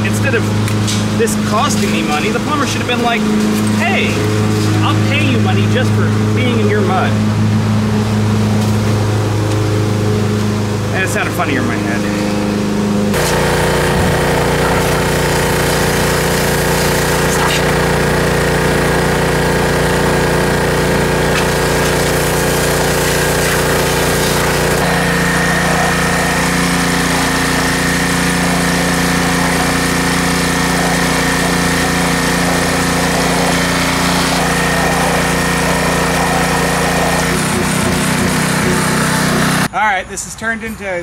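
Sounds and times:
pressure washer running: 0.0s - 39.7s
water blasting into mud: 13.2s - 39.6s.

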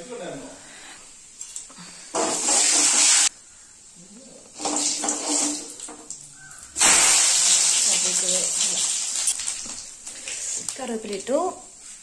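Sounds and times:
loud hiss: 0.4s - 5.8s, 6.7s - 10.9s
hot oil sizzling in a wok: 2.2s - 12.0s
mustard seeds popping: 5.7s - 11.4s.

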